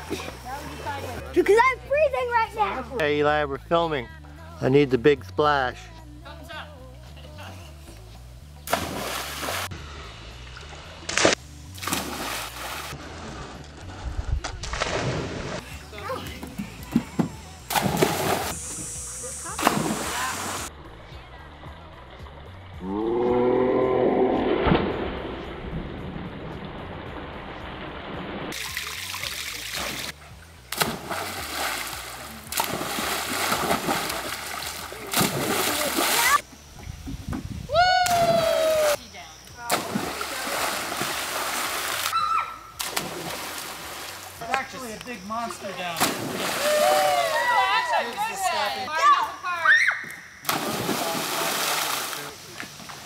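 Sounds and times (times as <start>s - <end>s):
child splashing into water: 8.7s - 9.7s, 11.1s - 12.9s, 14.6s - 15.6s, 17.7s - 18.6s, 19.6s - 20.6s, 30.7s - 36.4s, 39.7s - 42.2s, 42.8s - 44.2s, 46.0s - 47.5s, 50.4s - 52.3s
water splashing and washing: 8.7s - 9.7s, 10.4s - 21.0s, 24.6s - 36.5s, 39.7s - 44.7s, 45.8s - 47.7s, 50.4s - 53.0s.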